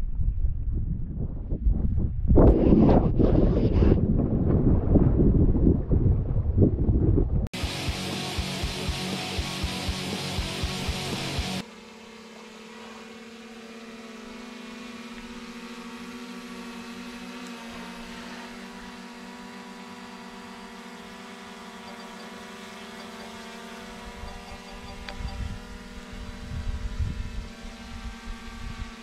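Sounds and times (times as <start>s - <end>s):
gusty rumbles on microphone: 0.0s - 7.5s
drone propellers humming: 7.6s - 29.0s.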